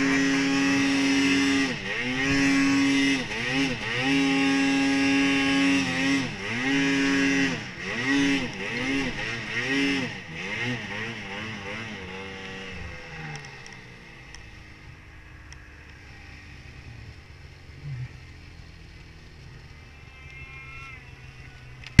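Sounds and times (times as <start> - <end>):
snowmobile engine winding down and idling: 0.0 - 22.0.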